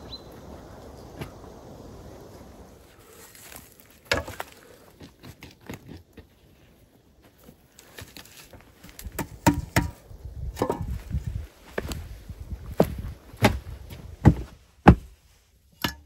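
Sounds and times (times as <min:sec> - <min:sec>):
soil thuds: 0:03.4 - 0:06.4, 0:07.8 - 0:16.0.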